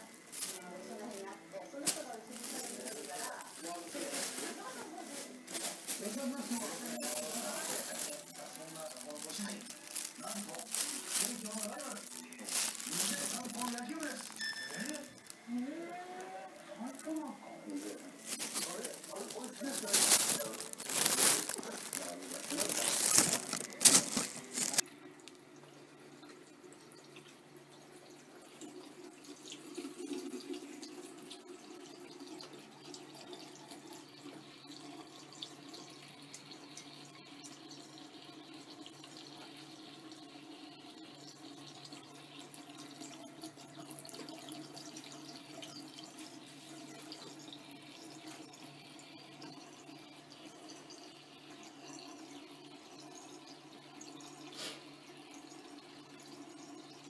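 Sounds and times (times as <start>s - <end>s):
tap water running into sink: 0.0s - 57.0s.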